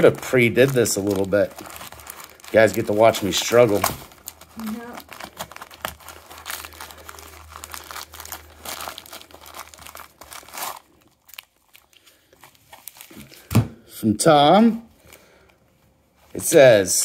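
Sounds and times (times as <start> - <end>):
plastic bag crinkling and tearing: 0.0 - 13.5
thump: 13.5 - 13.8.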